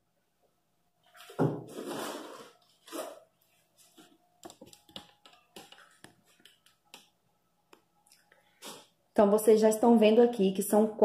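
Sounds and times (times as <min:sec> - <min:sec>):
cardboard rustling scrape: 0:01.2 - 0:04.0.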